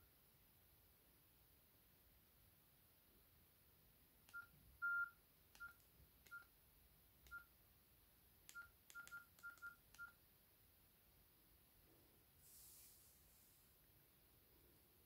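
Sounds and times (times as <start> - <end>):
phone keypad beeps: 4.3 - 6.5, 7.3 - 7.5, 8.5 - 10.2.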